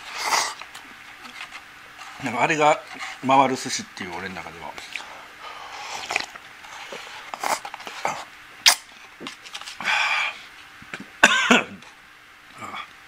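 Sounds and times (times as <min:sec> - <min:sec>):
man slurping noodles: 0:00.0 - 0:00.6, 0:05.7 - 0:06.4.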